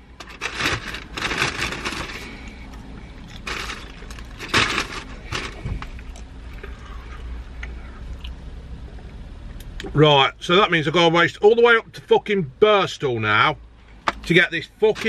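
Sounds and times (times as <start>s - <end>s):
van engine idling: 0.0s - 15.0s
short rustling: 3.4s - 6.0s.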